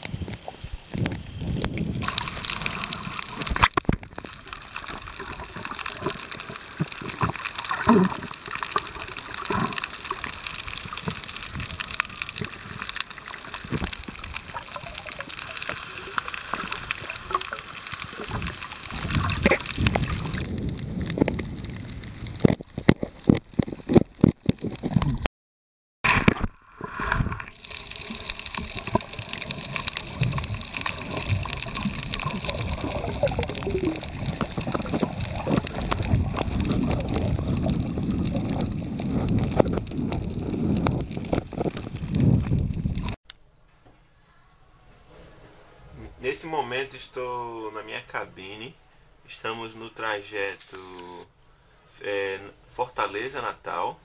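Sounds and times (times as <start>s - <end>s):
water rushing and gurgling: 0.0s - 25.3s, 26.1s - 43.2s.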